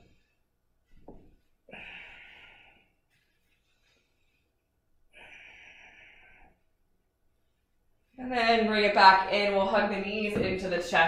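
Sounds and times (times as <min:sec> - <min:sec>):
woman breathing hard: 0:01.6 - 0:04.4, 0:05.1 - 0:06.7.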